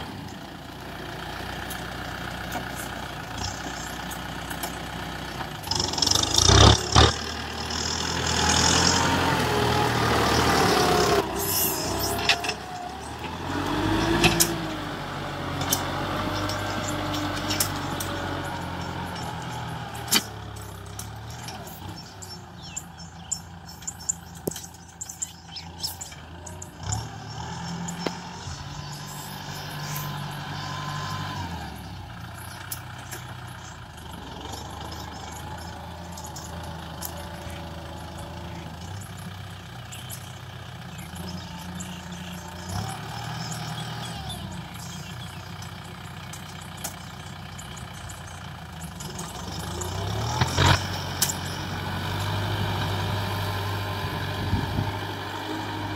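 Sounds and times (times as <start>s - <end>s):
tractor diesel engine under load: 0.0s - 55.9s.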